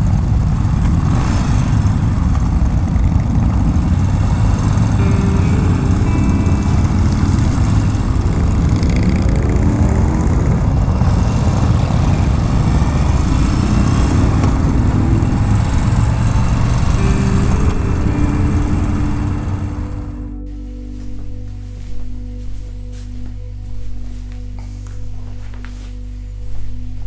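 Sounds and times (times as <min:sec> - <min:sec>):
motorcycle engine accelerating: 0:00.0 - 0:20.4.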